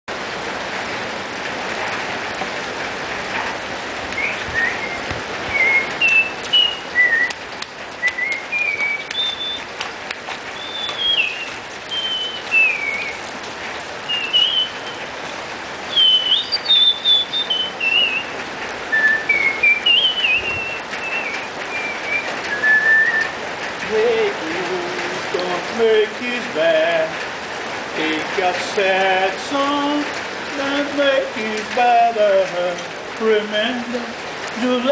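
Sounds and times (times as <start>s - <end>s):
rain falling: 0.1s - 34.9s
person whistling a tune: 4.2s - 7.4s, 8.0s - 9.7s, 10.6s - 13.1s, 14.1s - 14.8s, 15.9s - 18.3s, 18.9s - 23.4s.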